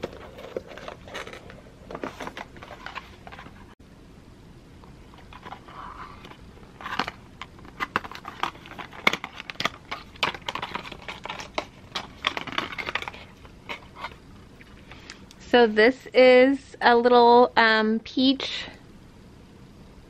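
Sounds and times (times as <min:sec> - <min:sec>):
cardboard packaging rustling: 0:00.0 - 0:03.8, 0:04.9 - 0:14.9.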